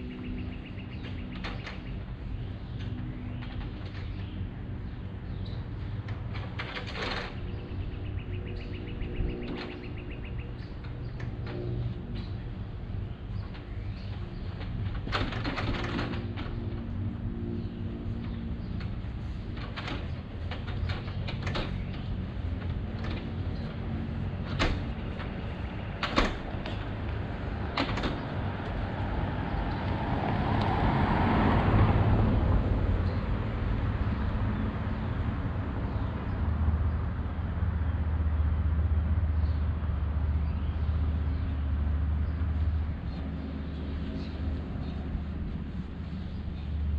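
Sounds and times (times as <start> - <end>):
vehicle passing: 21.2 - 46.9.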